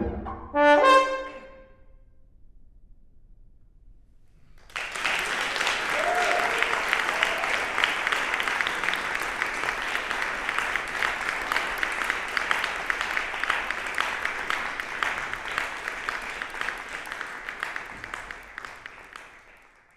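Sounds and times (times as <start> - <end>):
audience applauding: 4.6 - 19.9.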